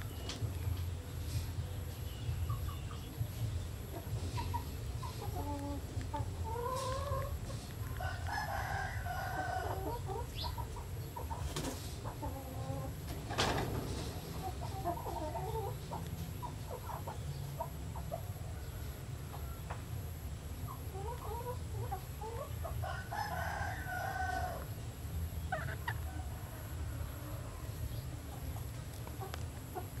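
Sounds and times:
chickens clucking: 0.0s - 30.0s
steady low hum: 0.0s - 30.0s
rooster crowing: 8.0s - 10.0s, 22.8s - 24.7s.

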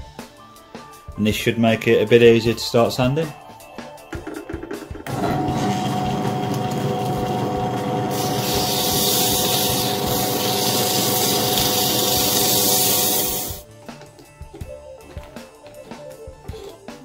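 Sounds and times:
drill press humming and whining: 5.1s - 13.6s
sandpaper hissing on wood: 8.1s - 13.6s.

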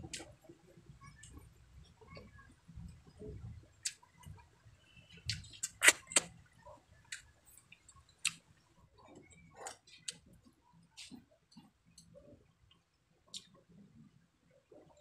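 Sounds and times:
chewing food: 5.1s - 13.6s
sharp clicks: 5.3s - 6.3s
wet mouth smacks: 5.3s - 6.3s.

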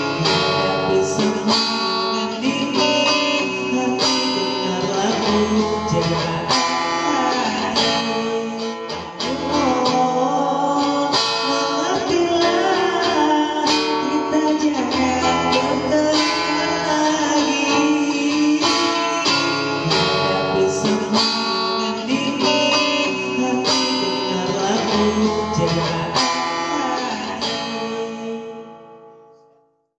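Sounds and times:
man singing into a microphone: 0.0s - 29.0s
guitar strumming: 0.0s - 29.5s.

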